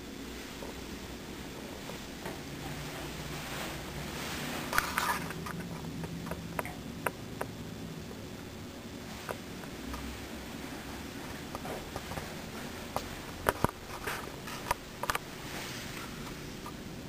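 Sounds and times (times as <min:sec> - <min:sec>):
steady low hum: 0:00.0 - 0:17.0
footsteps: 0:09.1 - 0:16.7.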